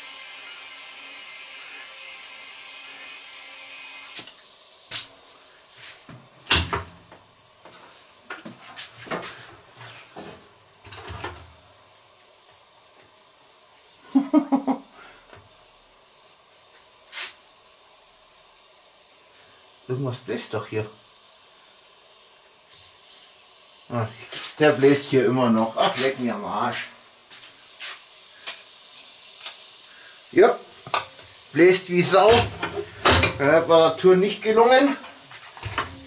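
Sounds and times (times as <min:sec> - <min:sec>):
compressed air hissing: 0:04.1 - 0:10.2, 0:11.0 - 0:36.0
wheel knocks and thumps: 0:32.3 - 0:33.5, 0:35.6 - 0:36.0.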